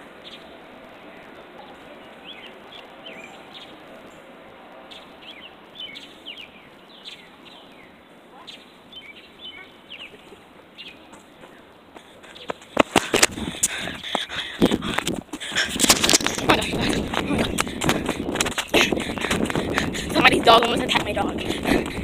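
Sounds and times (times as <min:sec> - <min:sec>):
small birds chirping: 0:00.0 - 0:12.8.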